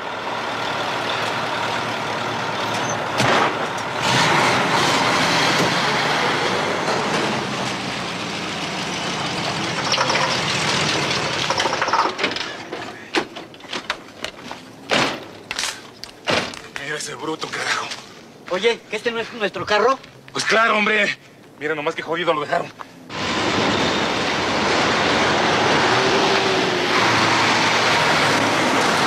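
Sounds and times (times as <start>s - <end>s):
heavy truck engine driving off: 0.0s - 12.6s, 23.1s - 29.0s.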